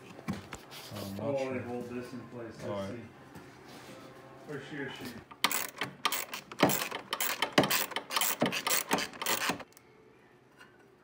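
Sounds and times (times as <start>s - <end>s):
ratchet wrench clicking: 5.3s - 9.8s.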